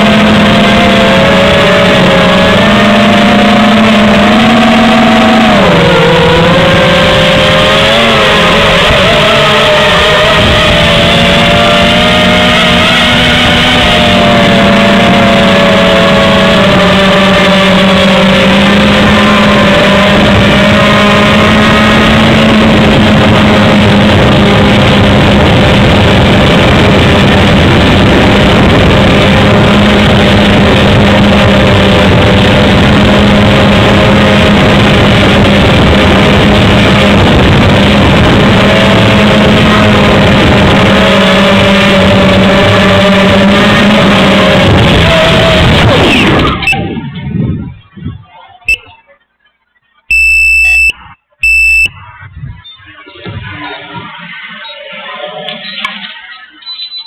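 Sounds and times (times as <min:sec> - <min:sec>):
drone motors whining: 0:00.0 - 0:25.7, 0:50.1 - 0:52.0.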